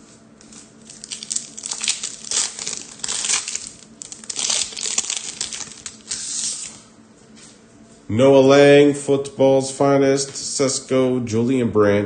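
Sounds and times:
foil wrapper crinkling and tearing: 0.8 - 6.7.

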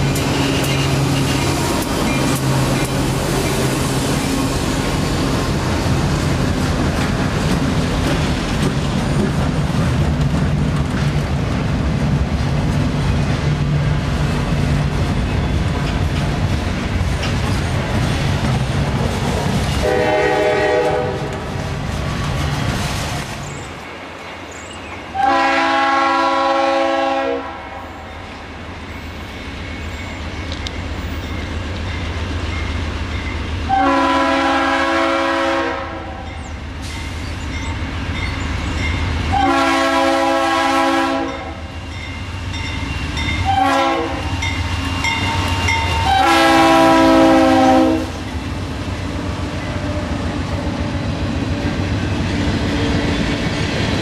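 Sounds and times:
freight cars rumbling on rails: 0.0 - 54.0
locomotive air horn blasts: 19.8 - 21.4, 25.2 - 27.8, 33.7 - 36.3, 39.3 - 41.6, 43.4 - 44.3, 45.7 - 48.2.

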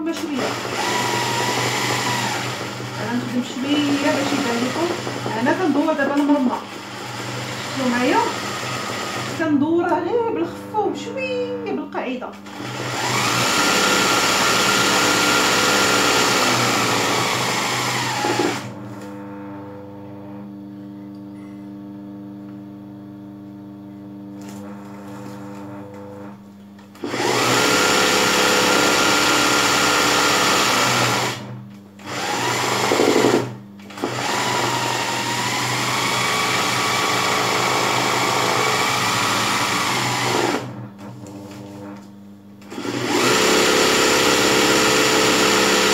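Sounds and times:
sewing machine stitching: 0.0 - 9.5, 12.4 - 18.7, 27.0 - 41.3, 42.7 - 45.9.

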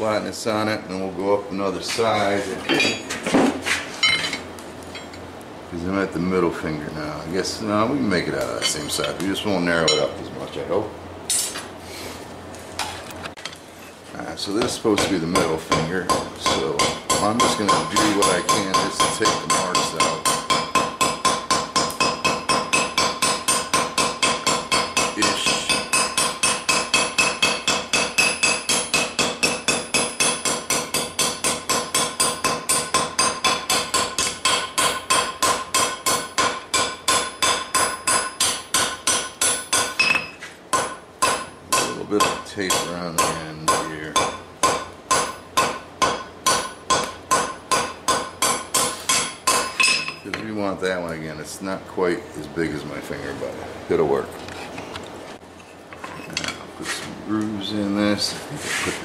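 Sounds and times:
hammer striking steel on anvil: 11.3 - 11.6, 14.6 - 50.4
anvil ringing: 46.5 - 50.2.

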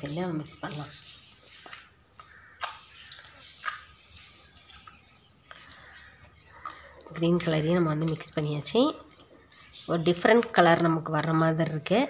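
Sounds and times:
slime squelching: 0.0 - 12.0.

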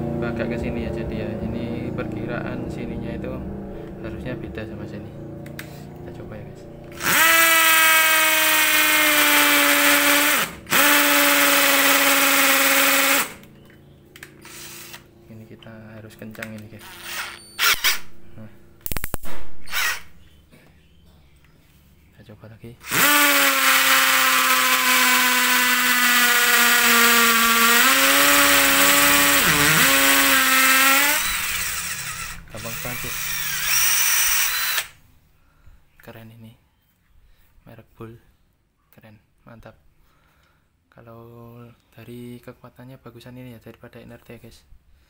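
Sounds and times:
hammer drill boring into wall: 6.9 - 13.5, 14.4 - 15.0, 16.8 - 18.0, 19.6 - 20.1, 22.8 - 35.0.

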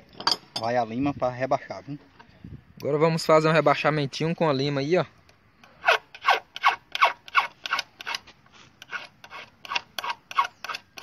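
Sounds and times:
hand file rasping on metal: 5.8 - 8.2, 8.8 - 11.0.

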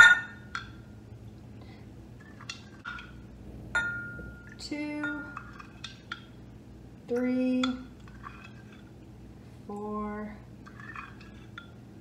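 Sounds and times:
spoon clinking against glass cup: 3.8 - 5.5.

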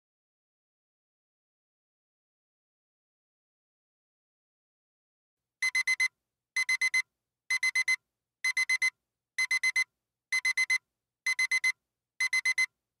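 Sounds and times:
alarm clock beeping: 5.6 - 9.8, 10.4 - 12.7.

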